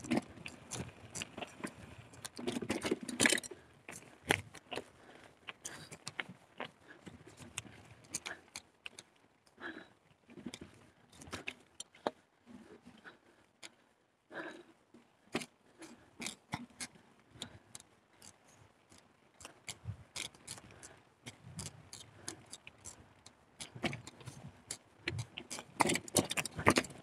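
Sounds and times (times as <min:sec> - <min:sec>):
mountain bike rattling: 0:00.0 - 0:06.4, 0:18.4 - 0:27.0
bike clicks and knocks: 0:23.7 - 0:27.0.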